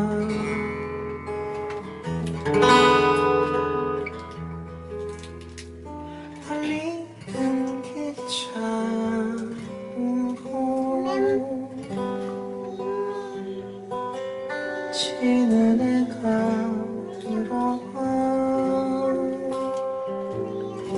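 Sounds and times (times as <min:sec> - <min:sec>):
man singing slow song: 0:00.0 - 0:00.9, 0:06.4 - 0:20.9
acoustic guitar: 0:00.0 - 0:20.9.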